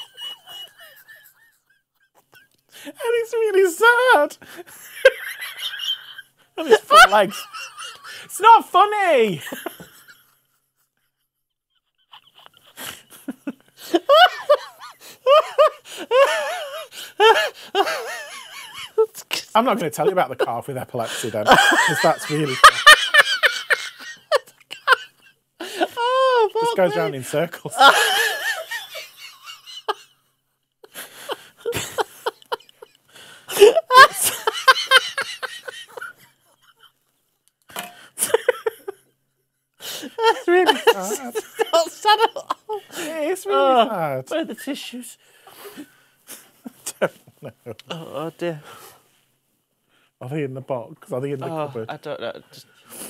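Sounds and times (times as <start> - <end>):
man laughing hard: 0.0 - 2.4, 5.0 - 8.3, 11.8 - 30.2, 30.9 - 36.9, 38.2 - 39.0, 39.8 - 43.0.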